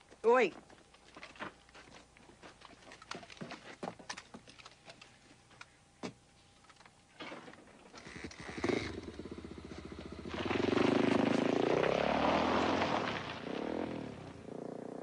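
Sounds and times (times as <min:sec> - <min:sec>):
motorcycle engine revving: 0:08.0 - 0:15.0.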